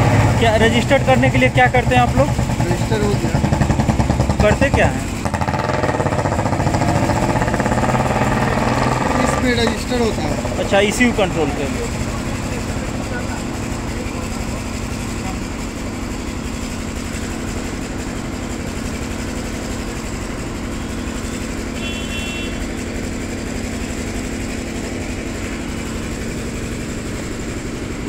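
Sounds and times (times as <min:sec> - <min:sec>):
mechanical drone: 0:00.0 - 0:21.9.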